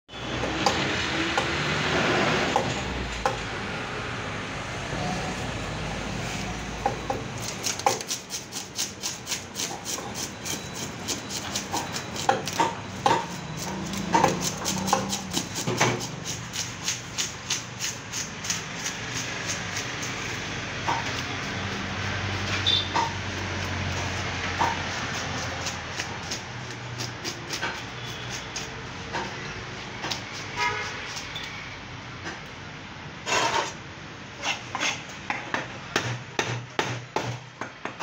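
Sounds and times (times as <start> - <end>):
knife scraping fish scales: 7.4 - 22.9, 23.9 - 28.8, 30.1 - 31.6, 33.2 - 33.8, 34.4 - 35.1.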